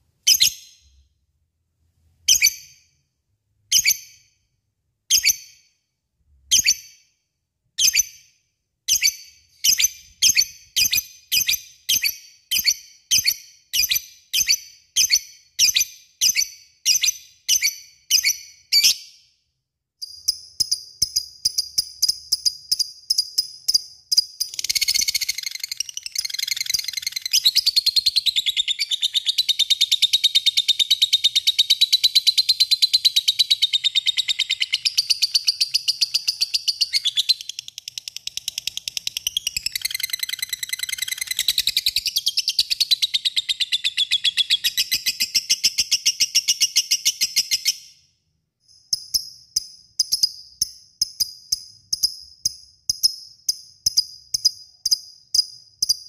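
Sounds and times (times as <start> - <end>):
lovebird chattering trill: 24.4 - 32.3.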